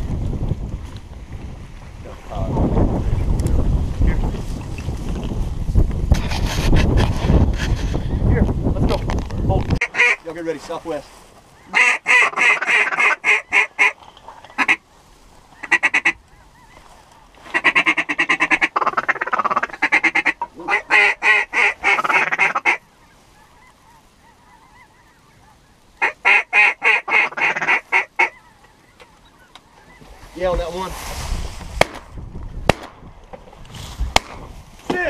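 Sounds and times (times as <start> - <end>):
duck call quacking: 9.8 - 10.2, 11.6 - 14.0, 14.6 - 14.8, 15.6 - 16.2, 17.5 - 22.8, 23.4 - 28.6.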